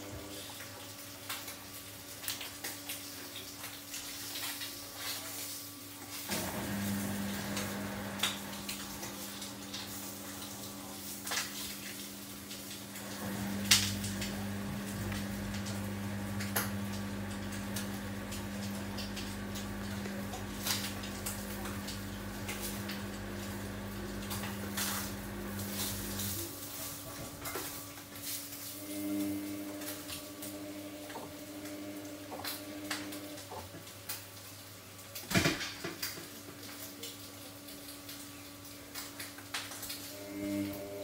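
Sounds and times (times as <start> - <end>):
washing machine motor hum: 0.0 - 34.0, 37.2 - 41.0
deeper hum: 6.5 - 12.2, 12.9 - 26.3.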